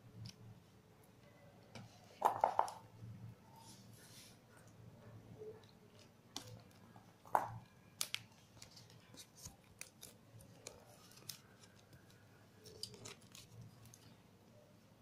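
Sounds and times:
plastic tape crinkling: 5.6s - 14.2s.

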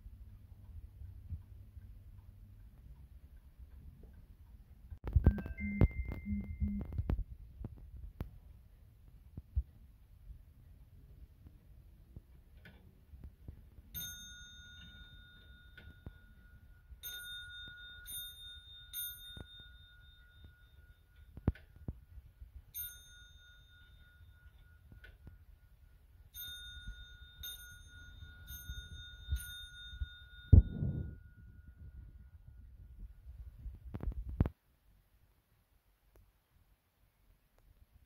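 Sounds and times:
mantel clock bell striking: 13.9s - 22.0s, 22.6s - 32.7s.

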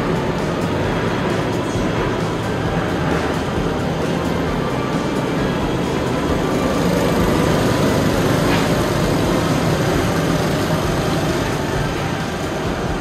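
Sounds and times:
go-kart engines droning: 0.0s - 13.0s.

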